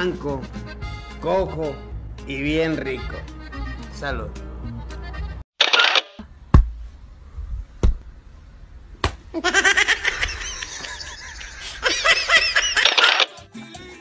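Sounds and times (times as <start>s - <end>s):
high-pitched giggling: 9.3s - 13.4s.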